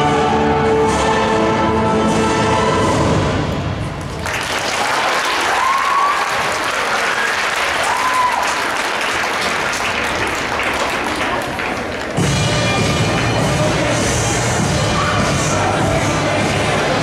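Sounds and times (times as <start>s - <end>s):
audience applause: 4.0s - 12.3s
accompaniment music: 12.0s - 17.0s.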